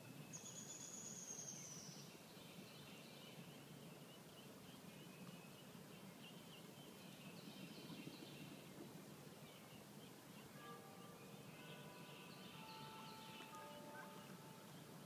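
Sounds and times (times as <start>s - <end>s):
background hiss: 0.0s - 15.0s
ducklings peeping: 11.0s - 15.0s.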